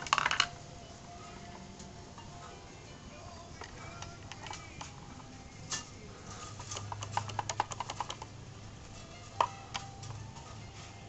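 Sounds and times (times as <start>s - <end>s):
plastic bricks clicking and rattling: 0.0s - 0.5s.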